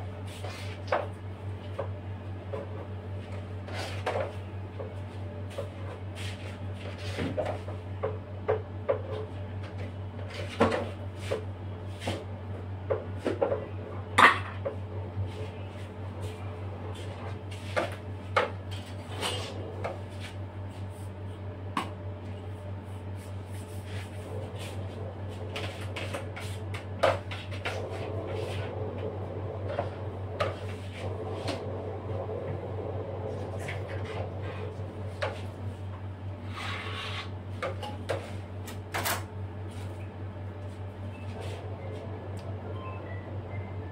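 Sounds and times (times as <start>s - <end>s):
low hum: 18.8s - 37.0s.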